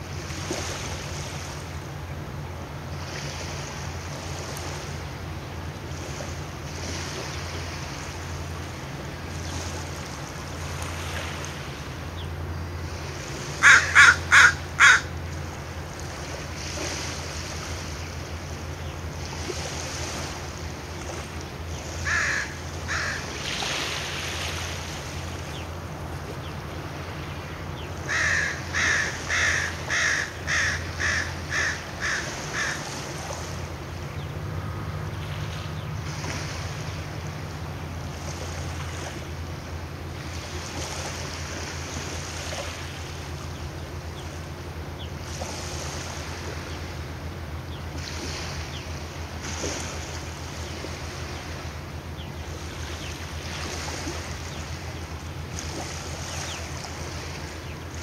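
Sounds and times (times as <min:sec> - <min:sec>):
ferry engine hum: 0:00.0 - 0:58.0
wind and water noise: 0:00.0 - 0:58.0
bird harsh calls: 0:13.6 - 0:15.1, 0:22.0 - 0:23.3, 0:27.9 - 0:33.0.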